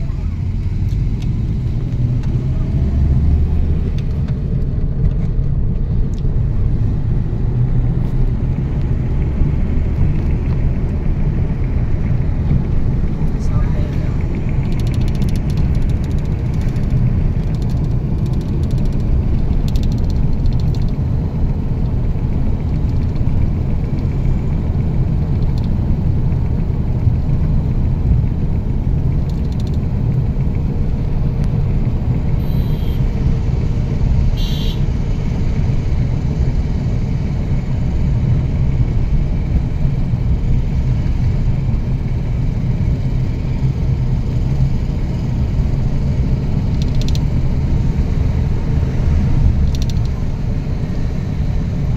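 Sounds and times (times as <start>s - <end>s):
car cabin road rumble: 0.0s - 51.9s
short high-pitched tones: 32.4s - 33.0s, 34.4s - 34.9s.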